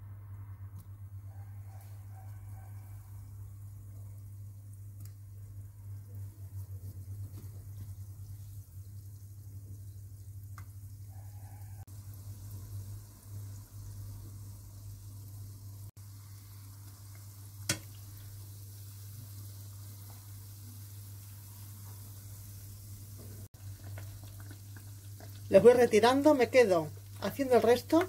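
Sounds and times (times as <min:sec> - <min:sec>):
fritters sizzling in oil: 0:01.7 - 0:28.0
spoon tapping pan: 0:17.6 - 0:18.0.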